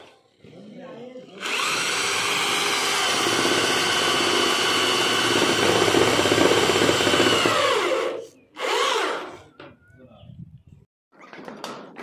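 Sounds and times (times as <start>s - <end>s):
electric drill driving screw: 1.4s - 9.4s.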